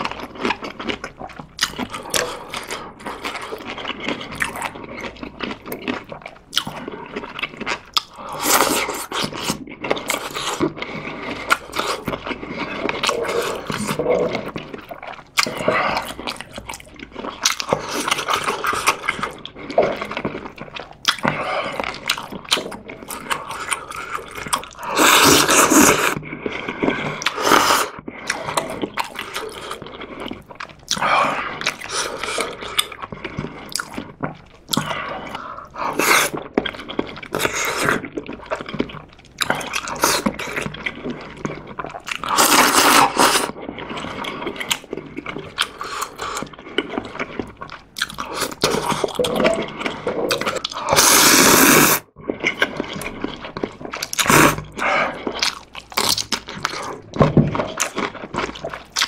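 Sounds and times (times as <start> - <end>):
chewing with wet mouth clicks: 0.0 - 59.0
loud slurps of noodles: 24.8 - 26.2, 42.2 - 44.1, 49.9 - 52.1.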